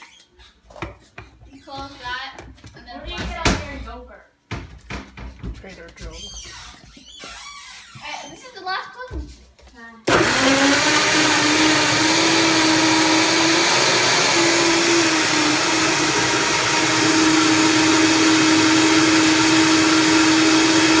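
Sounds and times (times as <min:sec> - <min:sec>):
blender motor whining: 0:10.1 - 0:21.0.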